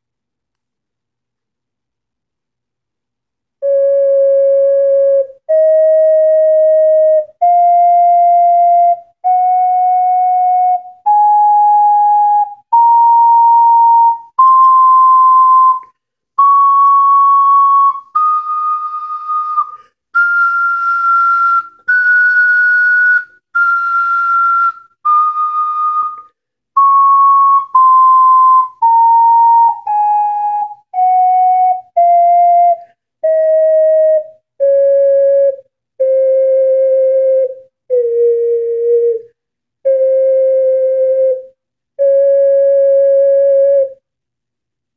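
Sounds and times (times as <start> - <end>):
ocarina playing held notes: 3.6 - 39.3.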